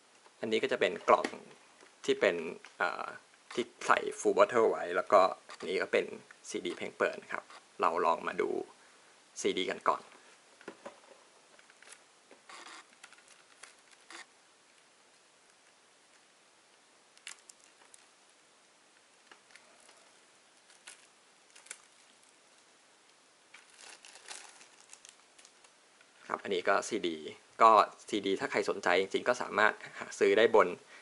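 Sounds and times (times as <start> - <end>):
plastic wrap crinkling: 11.6 - 16.2, 17.1 - 18.2, 19.1 - 22.7, 23.5 - 26.3.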